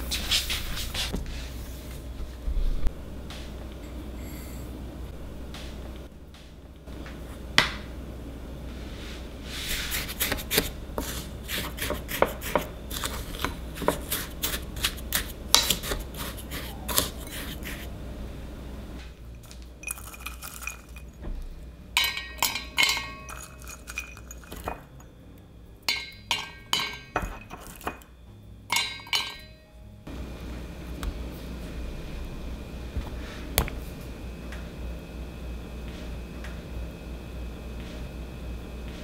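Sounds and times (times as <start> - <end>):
spoon scraping glass bowl: 15.6 - 17.9, 19.4 - 21.2, 22.0 - 25.0, 26.0 - 28.0.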